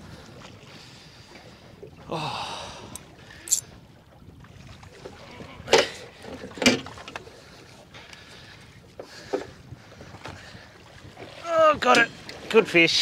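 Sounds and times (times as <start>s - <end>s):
water noise: 0.0s - 13.0s
person gasping: 2.1s - 3.0s.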